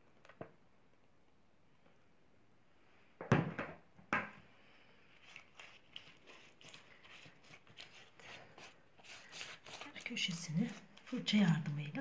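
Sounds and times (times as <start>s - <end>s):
pastry brush dabbing strokes: 5.0s - 12.0s.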